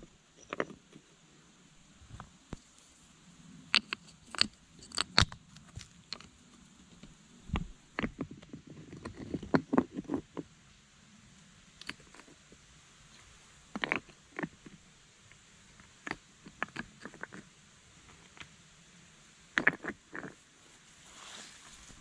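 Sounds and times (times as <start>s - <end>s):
stones knocking and scraping: 0.4s - 1.0s, 3.7s - 10.5s, 11.8s - 12.4s, 13.7s - 14.8s, 15.7s - 18.6s, 19.5s - 20.4s.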